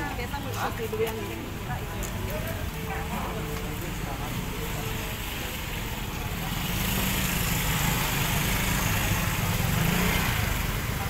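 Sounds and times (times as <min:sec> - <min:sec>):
small motorcycle engine running: 0:05.2 - 0:11.0.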